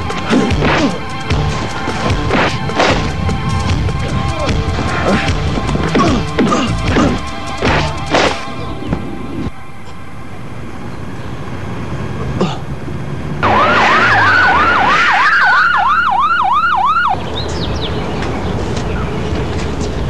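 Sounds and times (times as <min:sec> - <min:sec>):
emergency siren yelping: 0:13.4 - 0:17.2.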